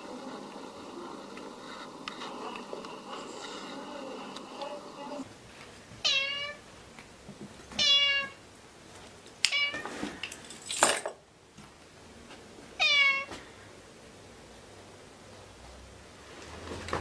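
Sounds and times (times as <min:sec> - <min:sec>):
cat meowing: 0:06.0 - 0:06.6, 0:07.8 - 0:08.4, 0:12.8 - 0:13.3.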